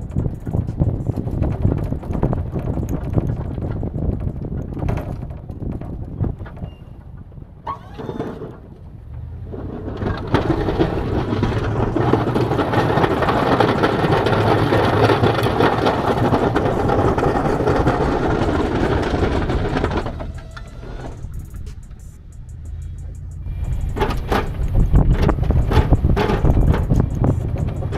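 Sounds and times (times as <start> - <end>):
truck engine under load: 0.0 - 27.9
plow blade scraping snow: 7.7 - 21.9, 22.6 - 27.9.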